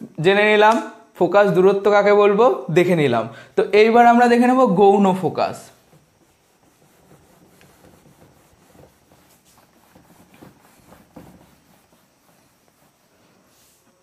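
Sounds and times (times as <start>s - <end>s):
whiteboard being wiped: 4.7s - 14.0s.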